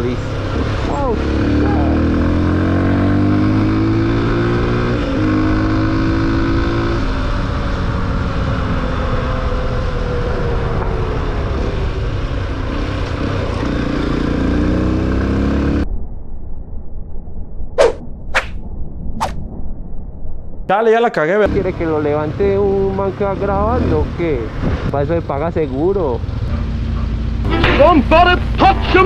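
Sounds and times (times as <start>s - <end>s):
wind on microphone: 24.5s - 25.0s.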